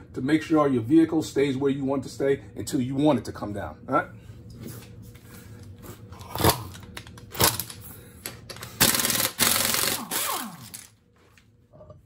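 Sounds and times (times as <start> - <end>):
impact wrench hammering: 8.8 - 10.9.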